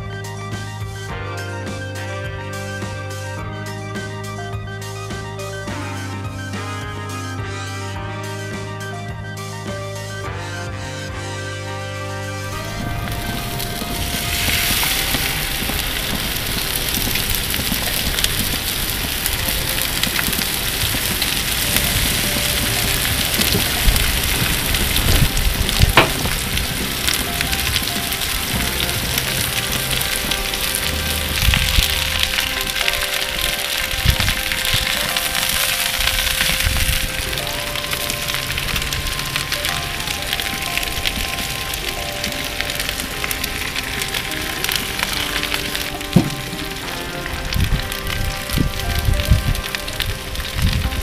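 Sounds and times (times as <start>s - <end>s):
soft background music: 0.0s - 51.0s
vegetables sizzling on a grill: 12.6s - 51.0s.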